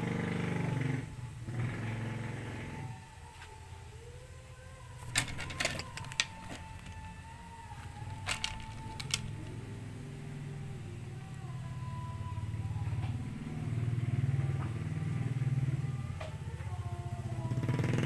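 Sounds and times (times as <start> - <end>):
metal chain clicking and rattling: 5.0 - 7.1, 8.1 - 9.5.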